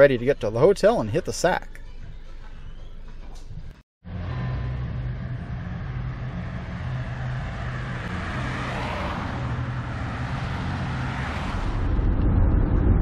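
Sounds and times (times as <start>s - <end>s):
steady low engine hum: 2.4s - 11.2s
cars driving past: 4.0s - 12.2s.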